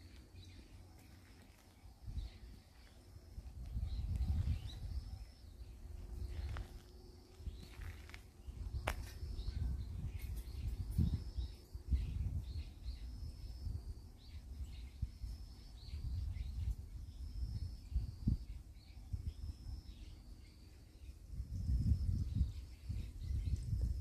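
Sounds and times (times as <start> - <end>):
small birds chirping: 0.0 - 24.0
fluctuating low rumble: 2.0 - 12.7.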